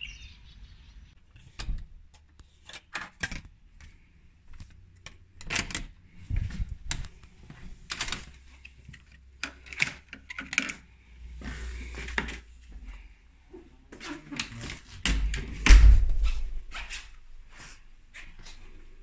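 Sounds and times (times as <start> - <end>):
door thump: 15.6 - 16.4.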